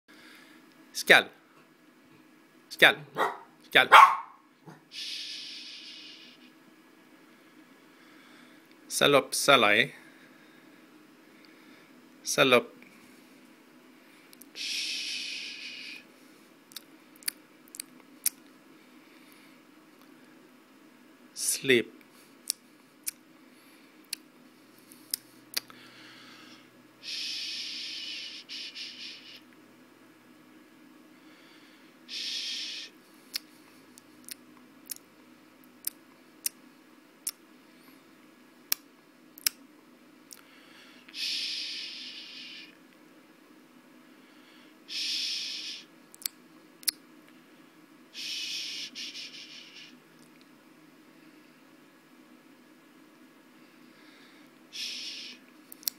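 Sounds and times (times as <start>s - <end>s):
soft breathy hisses: 4.9s - 6.6s, 14.0s - 16.5s, 25.8s - 29.5s, 31.2s - 33.6s, 40.5s - 42.8s, 44.1s - 45.9s, 48.1s - 50.0s, 53.7s - 55.4s.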